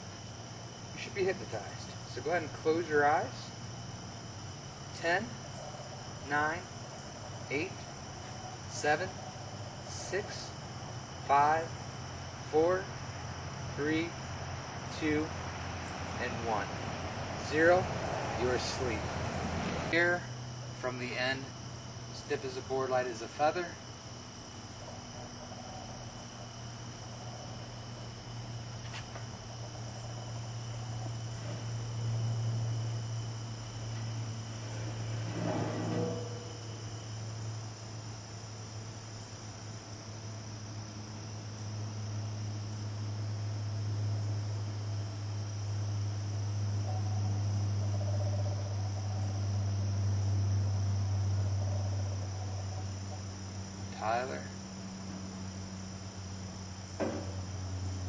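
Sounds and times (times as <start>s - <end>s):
crickets trilling: 0.0s - 58.0s
low steady hum: 0.0s - 58.0s
lower trill: 22.2s - 39.4s.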